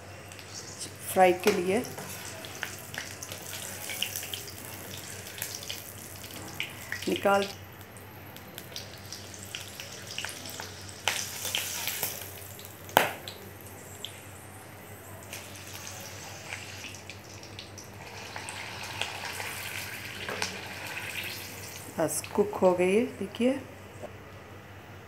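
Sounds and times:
chillies sizzling in oil: 0.0s - 23.5s
sharp oil pops: 13.0s - 13.4s.

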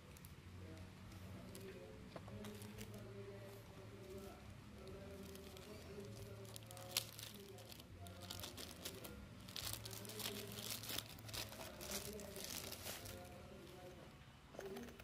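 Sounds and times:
plastic bag crinkling: 4.0s - 13.8s.

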